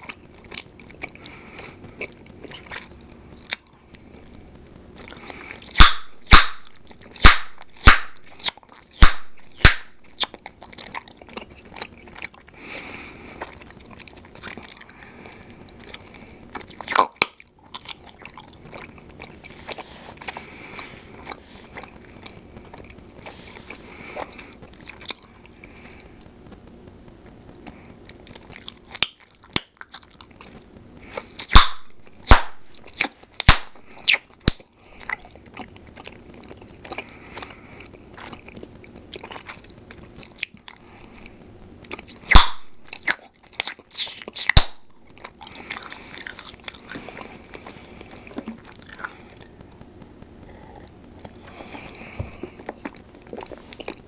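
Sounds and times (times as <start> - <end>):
gum chewing wet mouth sounds: 0.0 - 4.4, 5.0 - 26.3, 27.6 - 54.0
gum pops: 5.0 - 11.1, 15.8 - 19.3, 28.1 - 30.6, 31.2 - 35.8, 41.9 - 47.1.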